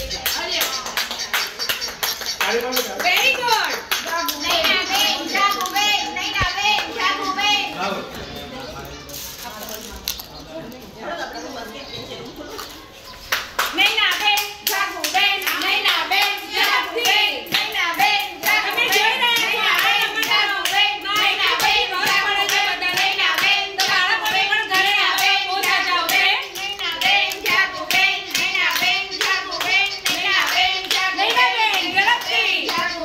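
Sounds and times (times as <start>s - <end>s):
children clapping: 0.0s - 7.0s, 13.2s - 33.0s
children chanting: 14.5s - 33.0s.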